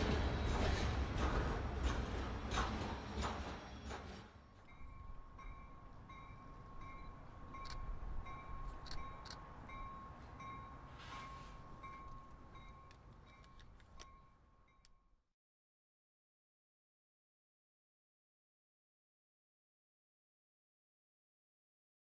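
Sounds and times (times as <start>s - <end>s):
railroad warning bell ringing: 4.6s - 15.2s.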